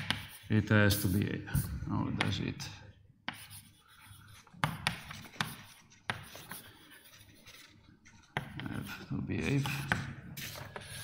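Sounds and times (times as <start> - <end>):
sharp taps on writing surface: 0.0 - 0.4, 4.5 - 6.6, 8.2 - 8.8
pen scratching on writing surface: 0.0 - 2.4, 3.2 - 11.0.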